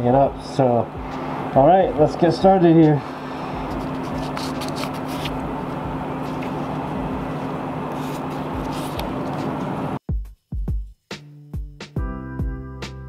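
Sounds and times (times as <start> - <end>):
mechanical hum: 0.0 - 10.0
hand sanding scratches: 2.8 - 9.7.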